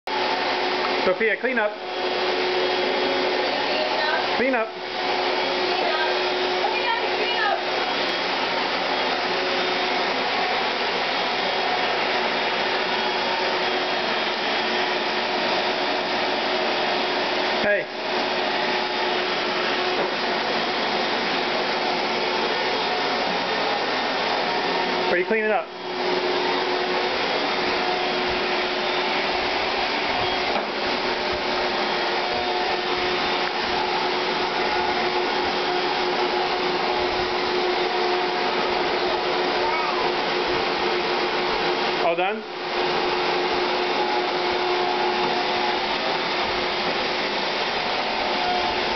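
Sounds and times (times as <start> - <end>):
handheld vacuum running: 0.1 - 48.9
child's voice: 39.1 - 40.2.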